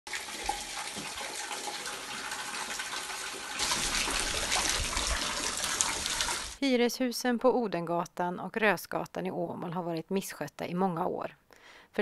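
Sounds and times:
water splashing into a pot: 0:00.1 - 0:06.6.

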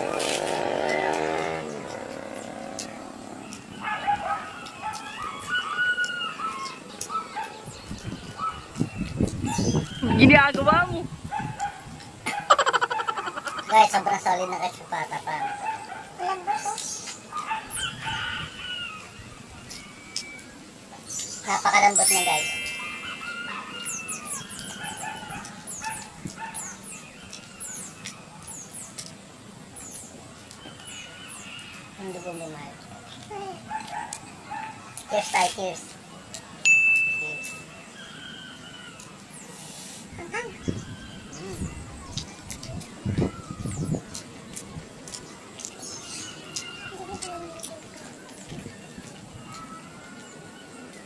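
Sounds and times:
wavering whining animal cries: 0:04.6 - 0:06.8, 0:22.2 - 0:26.1
high animal chirps: 0:21.3 - 0:28.0.

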